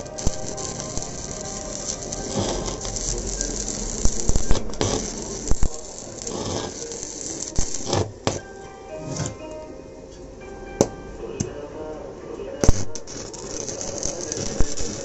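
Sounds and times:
sharp welding pops: 0:00.0 - 0:08.5, 0:12.6 - 0:15.0
arc welding crackling: 0:00.0 - 0:09.4, 0:12.6 - 0:15.0.

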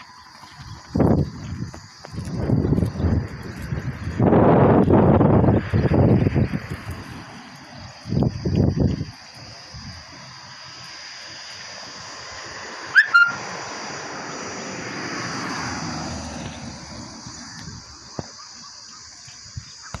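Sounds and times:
high insect drone: 0:00.0 - 0:20.0
vehicle passing: 0:03.1 - 0:18.0
two-part rising whistle: 0:12.9 - 0:13.5.

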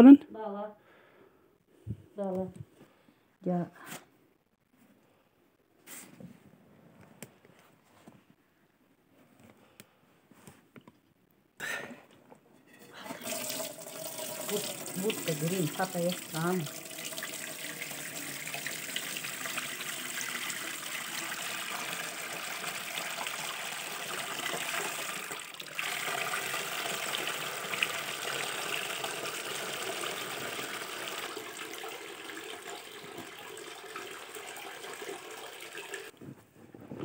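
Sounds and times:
milk pouring into a metal pot: 0:12.8 - 0:36.1.

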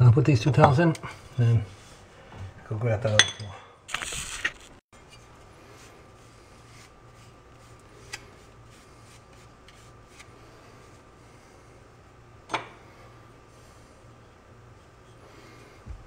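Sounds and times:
faint steady hum: 0:05.0 - 0:16.0.

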